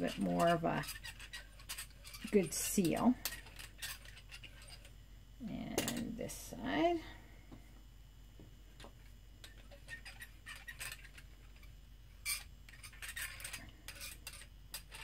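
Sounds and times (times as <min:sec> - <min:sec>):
hand roller clicking on clay: 0:00.0 - 0:04.7.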